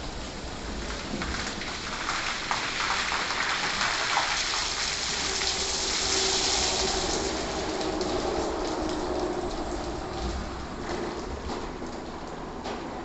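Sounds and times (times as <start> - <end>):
foam splashing onto car: 1.0 - 8.8.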